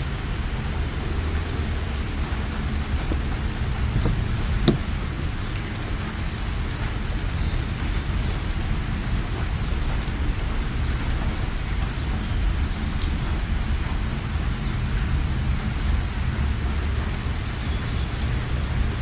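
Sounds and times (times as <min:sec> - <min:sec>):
heavy rain on car: 0:00.0 - 0:19.0
drops ticking: 0:00.2 - 0:08.4.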